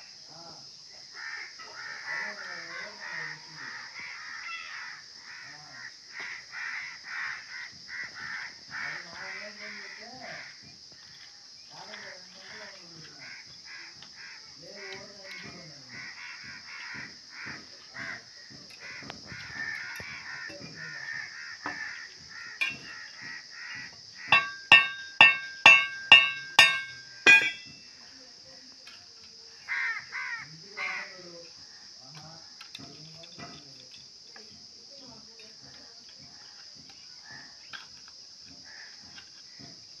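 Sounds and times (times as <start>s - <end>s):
crow cawing: 1.2s - 10.6s, 13.2s - 27.6s, 29.7s - 31.2s, 38.6s - 39.6s
blade tapping on wood: 21.7s - 21.9s, 22.6s - 23.0s, 24.3s - 27.8s.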